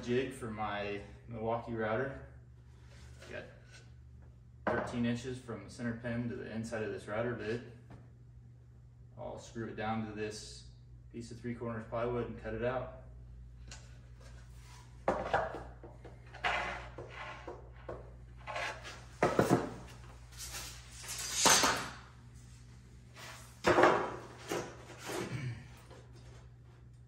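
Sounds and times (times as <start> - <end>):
wood scraping: 14.6 - 21.8.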